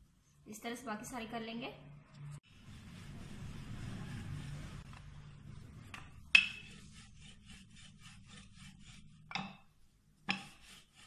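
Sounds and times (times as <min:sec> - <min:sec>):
rolling pin rubbing on dough: 0:02.4 - 0:09.3, 0:10.2 - 0:11.0.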